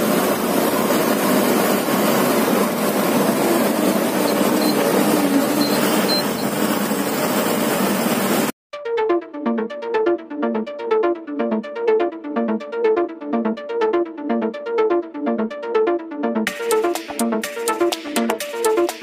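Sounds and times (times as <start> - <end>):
truck engine inside cab: 0.0 - 8.6.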